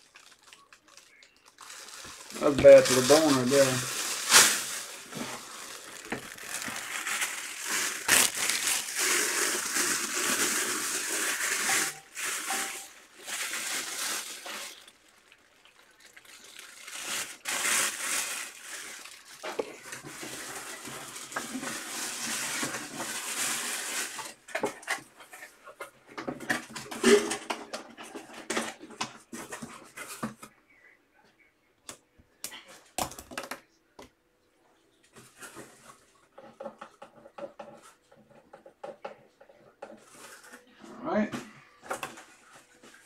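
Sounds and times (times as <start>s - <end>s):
plastic bag crinkling: 0.0s - 25.0s.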